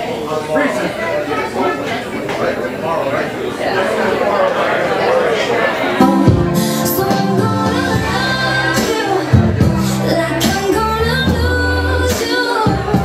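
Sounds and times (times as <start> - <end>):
live dance band playing: 5.9 - 13.0.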